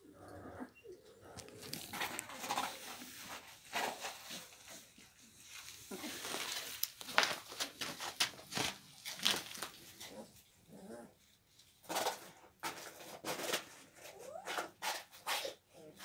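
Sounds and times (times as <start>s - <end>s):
scratchy crackles: 1.3s - 10.3s.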